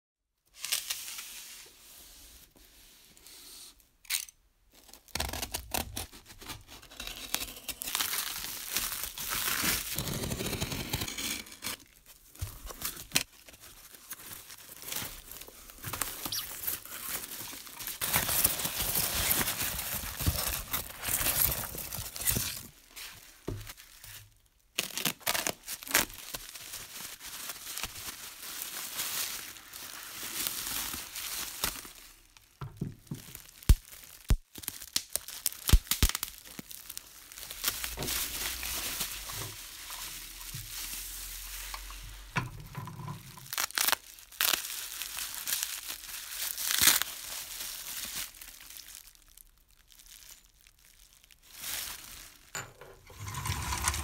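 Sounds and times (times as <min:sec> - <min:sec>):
bubble wrap crinkling: 0:04.7 - 0:42.4, 0:43.2 - 0:54.0
foam chunks rustling in box: 0:06.0 - 0:24.0, 0:33.0 - 0:42.3, 0:51.4 - 0:54.0.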